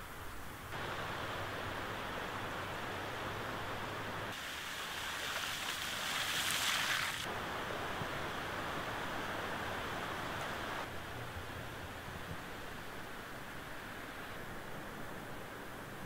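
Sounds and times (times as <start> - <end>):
car tyres hissing on wet road: 0.7 - 10.9
floodwater rushing: 0.7 - 10.9.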